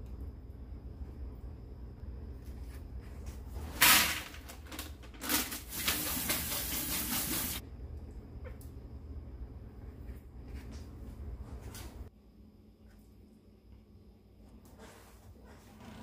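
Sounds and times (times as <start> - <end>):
tap water running into sink: 5.5 - 7.6.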